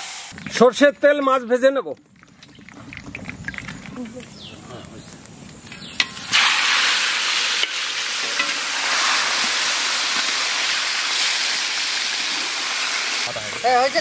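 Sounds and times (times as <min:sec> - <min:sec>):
fish sizzling in hot oil: 0:05.7 - 0:14.0.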